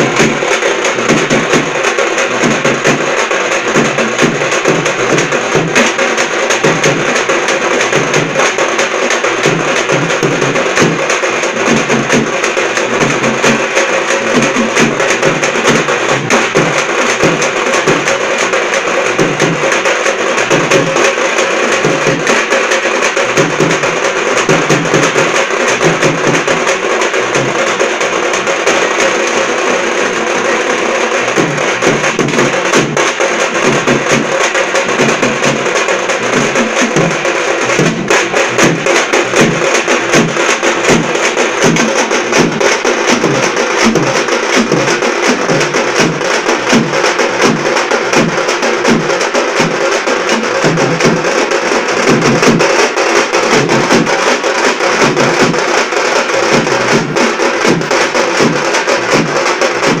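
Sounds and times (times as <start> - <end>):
drum band playing: 0.0 - 60.0.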